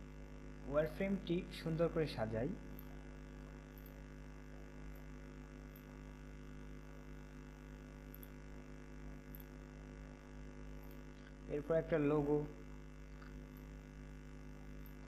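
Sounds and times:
low mains hum: 0.0 - 15.0.

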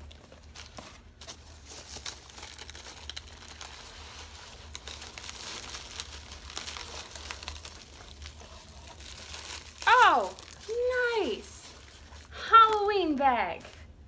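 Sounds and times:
hands rustling packing peanuts: 0.0 - 13.8.

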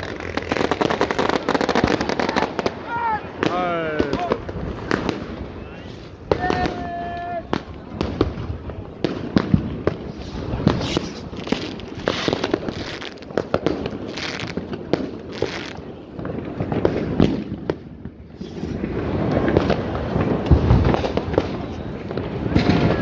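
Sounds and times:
distant firework bangs and crackle: 0.0 - 23.0
sharp firework bangs: 0.0 - 23.0.

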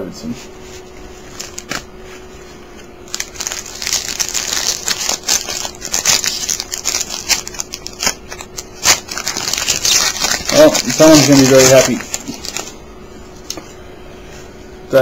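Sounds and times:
foil wrapper tearing and crinkling: 1.3 - 1.9, 3.1 - 12.7.

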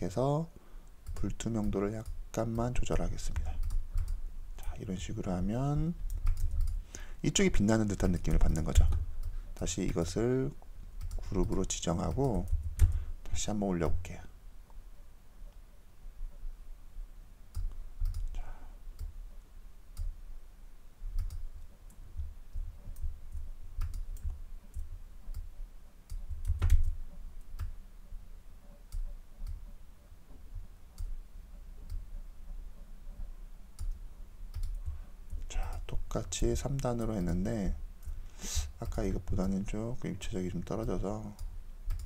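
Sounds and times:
computer mouse and keyboard clicking: 1.0 - 2.2, 3.3 - 4.7, 6.0 - 6.8, 11.0 - 13.0, 17.5 - 18.4, 21.1 - 27.8, 32.8 - 35.5, 40.8 - 42.0
soft low thumps: 21.0 - 25.6.

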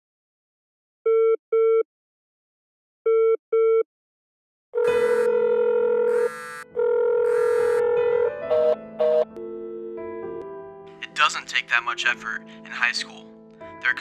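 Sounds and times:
telephone ringing double beeps: 4.8 - 8.0
music with held notes: 4.8 - 11.0.

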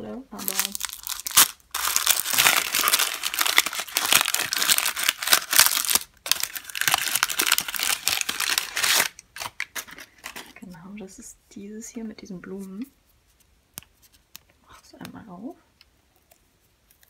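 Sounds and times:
tissue paper crinkling: 0.4 - 10.7.

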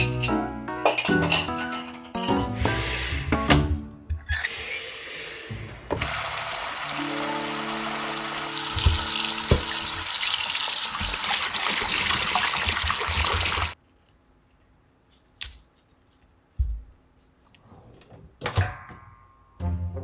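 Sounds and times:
tap water running into metal bowl: 6.0 - 13.8.

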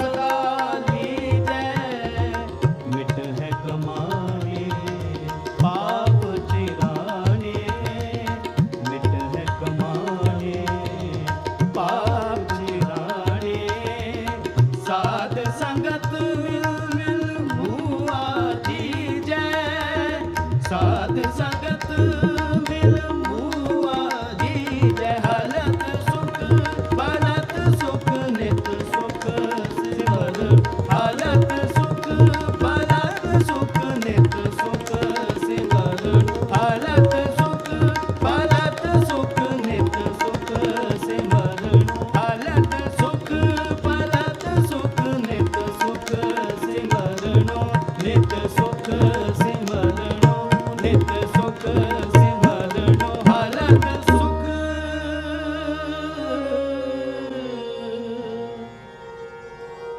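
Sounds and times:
tabla beat: 0.0 - 55.9
harmonium drone: 0.0 - 59.9
bowed string melody: 50.1 - 59.9.

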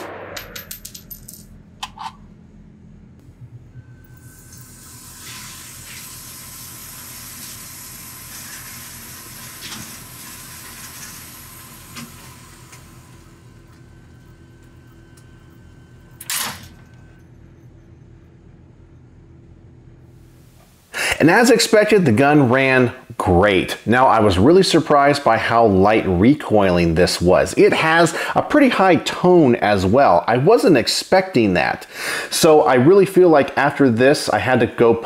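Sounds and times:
brief loud noise: 0.0 - 0.6.

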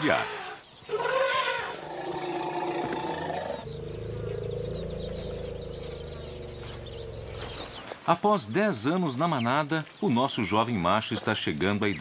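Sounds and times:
small birds chirping: 0.0 - 12.0
elephants calling: 0.3 - 8.0.

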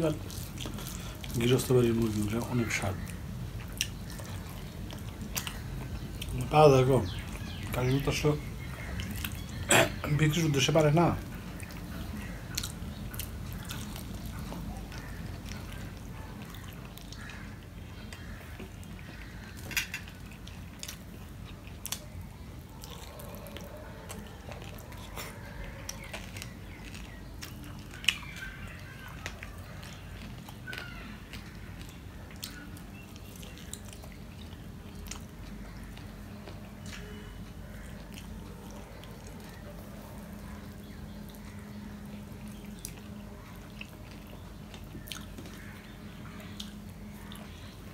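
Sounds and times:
soft wet chewing: 0.0 - 47.9.

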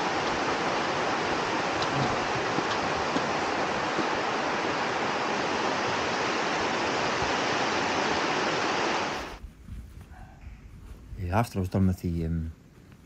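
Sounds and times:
stream rushing down waterfalls: 0.0 - 9.4.

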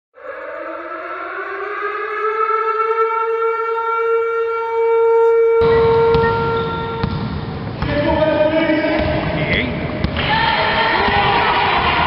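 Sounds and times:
sports hall noise: 0.2 - 12.0
held horn-like note: 3.7 - 7.1.

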